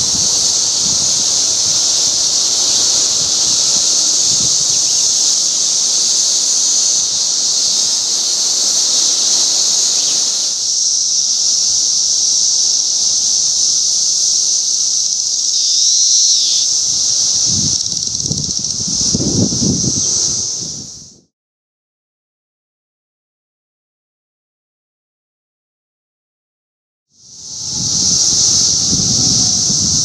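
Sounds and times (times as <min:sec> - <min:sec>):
cicada call dipping in pitch: 0:00.0 - 0:21.1, 0:27.3 - 0:30.0
cicadas chorus: 0:00.0 - 0:21.3, 0:27.2 - 0:30.0.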